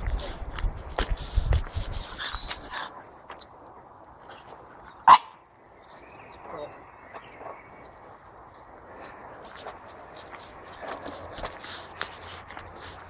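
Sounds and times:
birds chirping: 1.0 - 13.0
small dog barking: 5.0 - 5.4.

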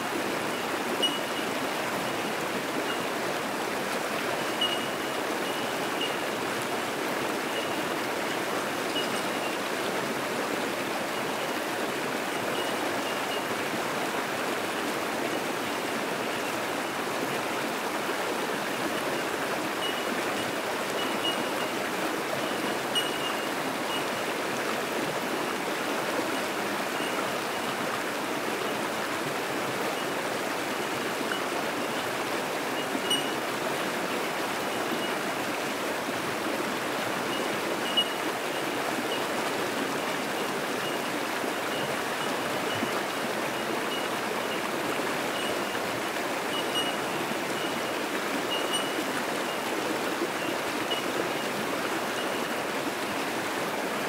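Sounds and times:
creek rushing over rocks: 0.0 - 54.0
bellbirds tinking: 0.5 - 1.6, 4.4 - 6.4, 7.5 - 7.9, 8.9 - 9.6, 19.8 - 21.8, 22.4 - 24.3, 32.8 - 33.4, 37.3 - 39.2, 40.8 - 44.7, 45.3 - 45.9, 46.5 - 49.6, 50.4 - 51.4.

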